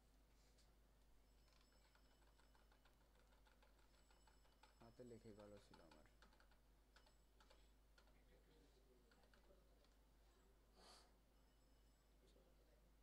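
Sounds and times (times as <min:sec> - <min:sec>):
computer keyboard keystrokes: 0:01.5 - 0:08.2.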